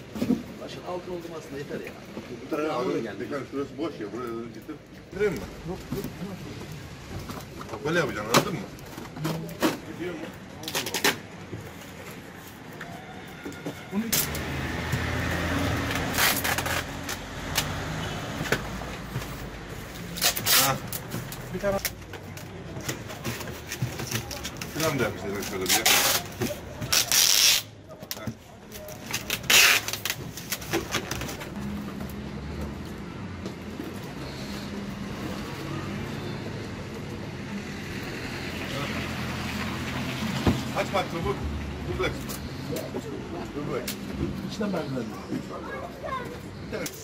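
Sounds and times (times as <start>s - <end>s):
vehicle engine rumbling: 28.5s - 47.0s.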